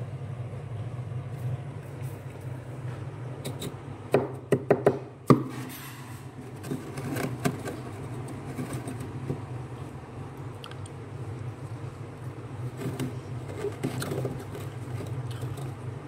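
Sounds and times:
glass cup scraping frost: 12.7 - 15.8.

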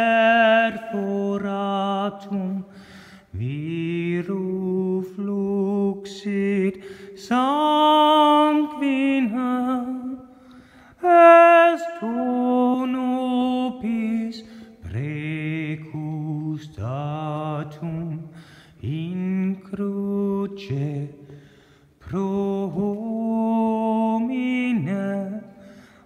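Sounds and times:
man singing long notes: 0.0 - 2.7.

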